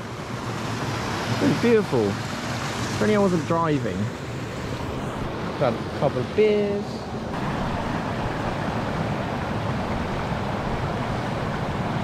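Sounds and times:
stream rushing over rocks: 7.4s - 12.0s.

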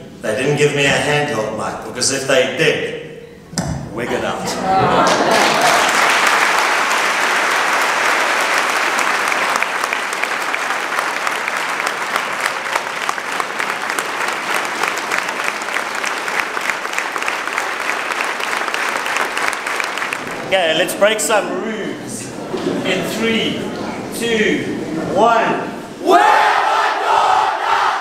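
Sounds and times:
audience applauding: 4.7s - 21.1s.

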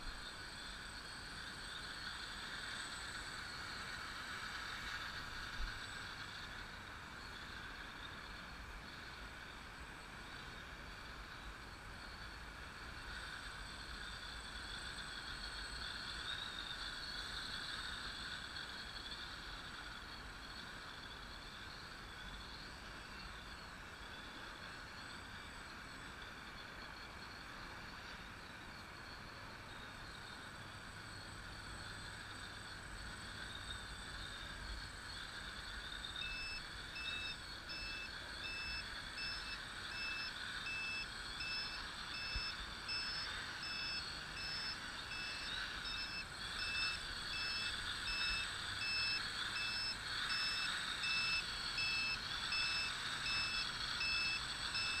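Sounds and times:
drone propellers whining: 35.8s - 55.0s
high-pitched electronic beeps: 36.1s - 55.0s.

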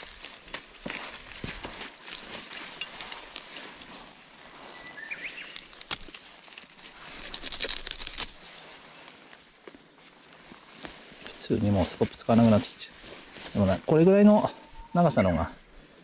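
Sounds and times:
rustling in dry leaves: 0.0s - 15.0s
twigs snapping: 0.2s - 3.9s, 5.2s - 9.2s
bird chirp: 4.7s - 5.6s.

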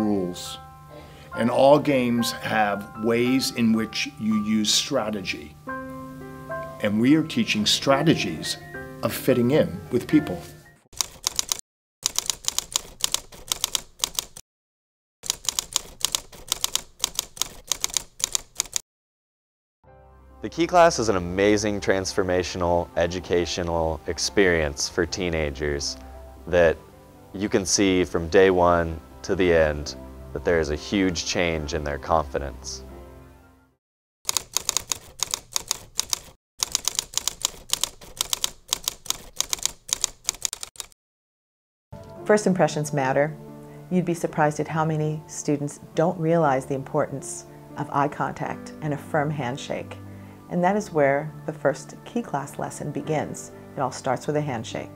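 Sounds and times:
typewriter key clicks: 11.0s - 14.4s, 15.2s - 18.8s, 34.3s - 41.0s.

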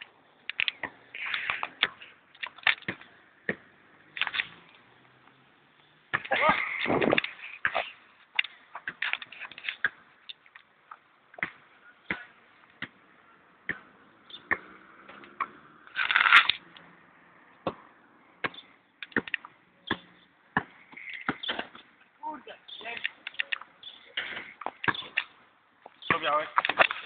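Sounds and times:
basketball bouncing on court: 13.6s - 14.8s.

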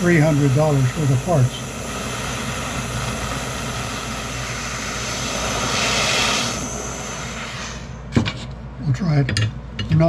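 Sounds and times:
propane torch hissing: 0.0s - 8.1s.

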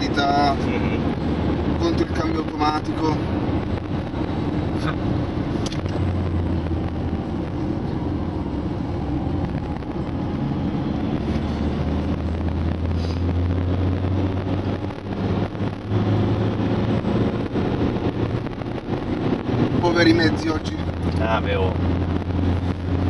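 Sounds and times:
diesel engine running: 0.0s - 23.0s
road and wind noise: 0.0s - 23.0s.

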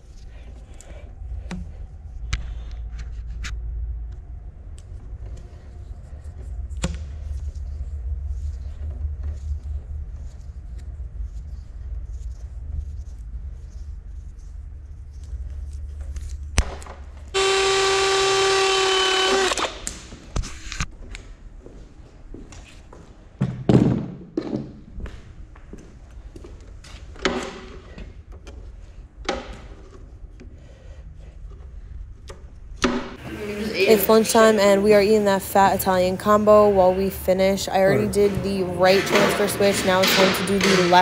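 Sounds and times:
low steady hum: 0.0s - 19.8s
crimping tool motor whine: 17.4s - 19.9s.

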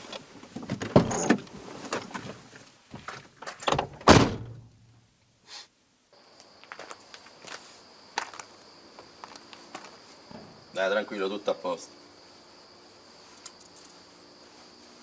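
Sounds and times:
car door opening: 0.5s - 4.6s
car door shutting with thud: 3.7s - 4.6s.

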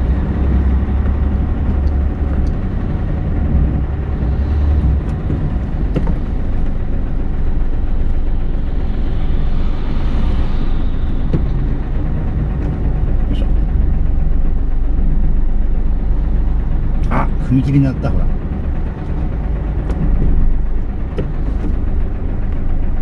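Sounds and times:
truck diesel engine running: 0.0s - 23.0s.

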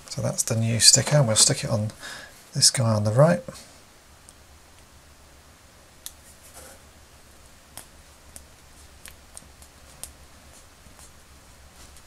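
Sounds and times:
small clicks and light rustles: 4.2s - 4.9s, 7.3s - 12.0s.

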